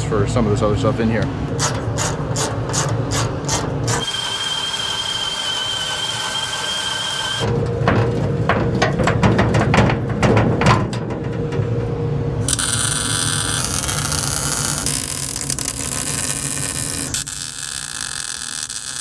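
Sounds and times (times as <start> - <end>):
tool high whine: 1.6 - 7.5, 12.4 - 19.0.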